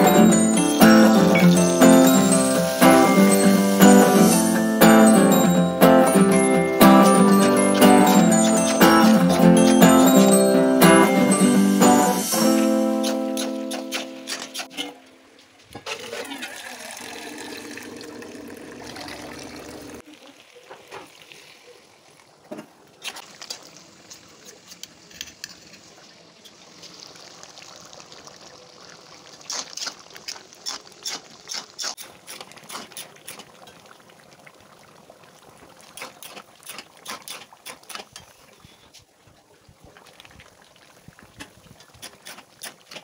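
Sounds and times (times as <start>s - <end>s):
curry bubbling in a pan: 16.8s - 43.0s.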